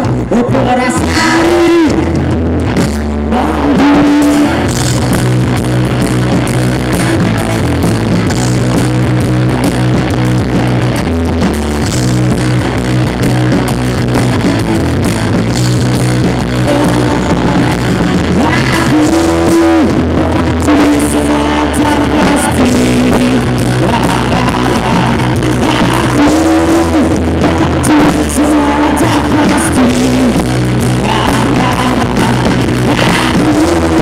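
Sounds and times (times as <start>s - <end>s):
bass guitar: 0.0s - 34.0s
distorted electric guitars: 0.0s - 34.0s
drum kit: 0.0s - 34.0s.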